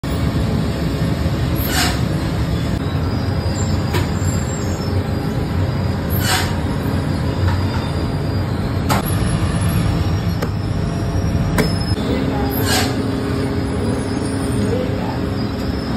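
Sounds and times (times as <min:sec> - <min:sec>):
dough machinery droning: 0:00.0 - 0:15.9.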